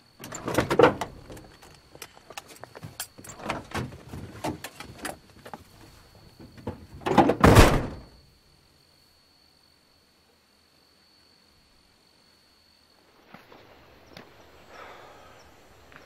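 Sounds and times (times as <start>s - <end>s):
car doors opening and shutting: 0.2s - 1.7s, 3.2s - 5.2s, 6.5s - 8.2s
car door slamming: 7.2s - 8.1s.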